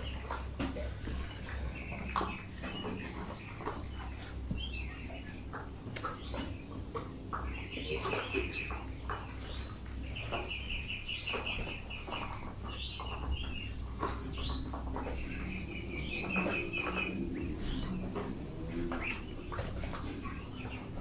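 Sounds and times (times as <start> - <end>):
bills pecking feed: 0.0 - 21.0
ducklings peeping: 0.0 - 21.0.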